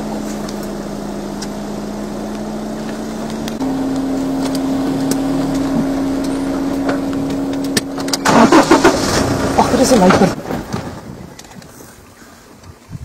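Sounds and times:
motor engine idling: 0:00.0 - 0:10.3.

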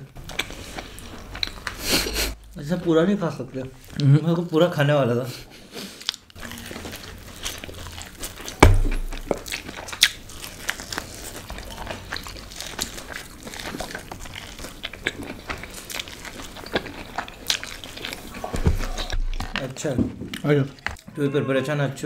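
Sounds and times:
chewing and biting food: 0:00.0 - 0:02.4, 0:05.6 - 0:21.1
loud thump: 0:08.6 - 0:09.3.

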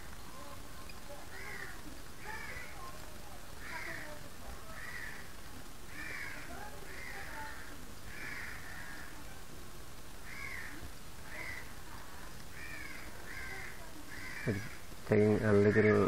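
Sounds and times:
faint steady hiss: 0:00.0 - 0:16.0
bird calling: 0:10.2 - 0:14.9.

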